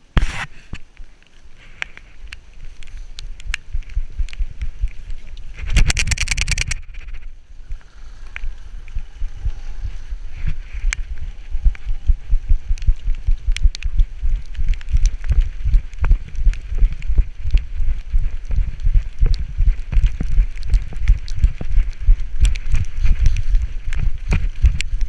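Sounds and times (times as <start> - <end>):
rhythmic low thumping: 11.6 - 23.2.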